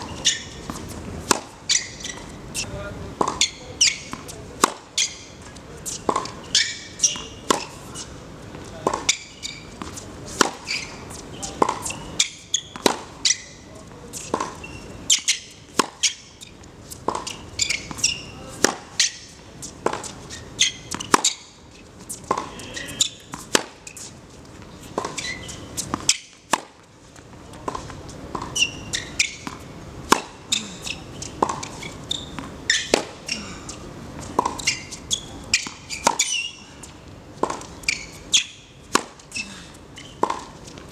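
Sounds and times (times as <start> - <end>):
racket hitting tennis ball: 0.0 - 24.2, 24.8 - 26.9, 27.5 - 40.9
ball bouncing on hard court: 11.4 - 13.5.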